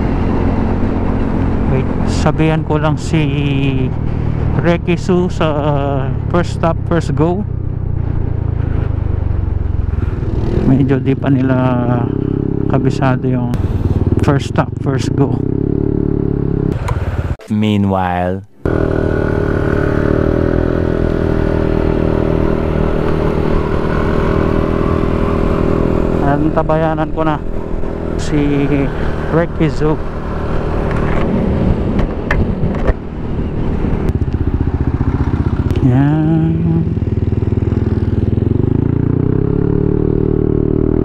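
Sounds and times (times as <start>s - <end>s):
motorcycle engine running: 0.0s - 17.4s, 18.6s - 41.0s
wind rumbling on microphone: 30.0s - 39.1s.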